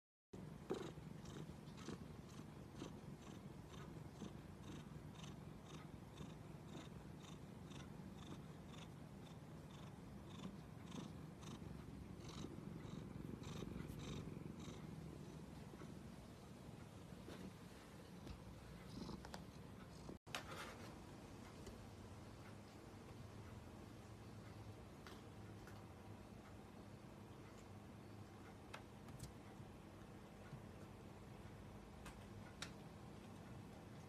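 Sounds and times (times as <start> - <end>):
cat purring: 0.4 - 20.2.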